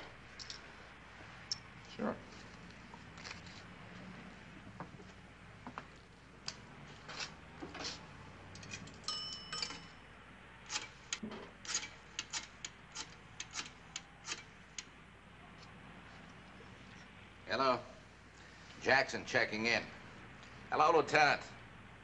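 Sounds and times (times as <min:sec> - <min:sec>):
coin dropping into payphone: 0:08.6 - 0:10.0
payphone coin bell ring: 0:09.0 - 0:10.0.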